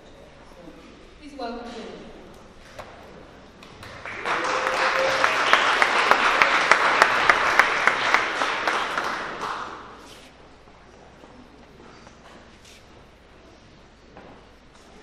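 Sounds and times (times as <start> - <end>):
sharp close claps: 3.6 - 10.0
audience applauding: 3.6 - 10.1.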